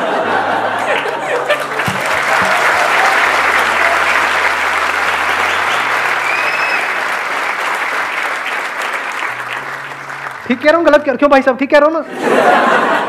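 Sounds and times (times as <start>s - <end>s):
audience laughing: 0.0s - 10.4s, 12.0s - 13.0s
audience applauding: 0.8s - 11.1s
short high whistle: 5.5s - 6.9s.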